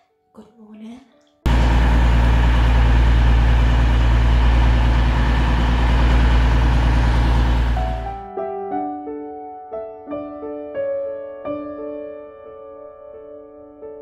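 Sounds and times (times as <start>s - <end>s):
heavy engine idling: 1.5s - 8.3s.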